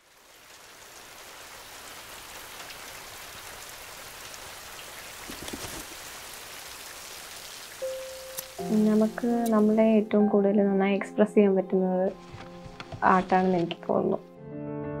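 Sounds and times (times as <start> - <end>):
rain-like hiss: 0.0 - 9.9.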